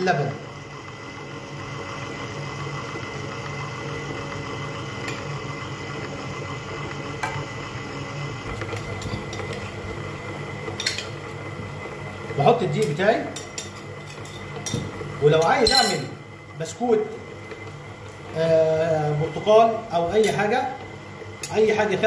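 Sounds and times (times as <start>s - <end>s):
stand mixer running: 0.0s - 22.0s
light clinks of beater on bowl: 15.5s - 16.0s.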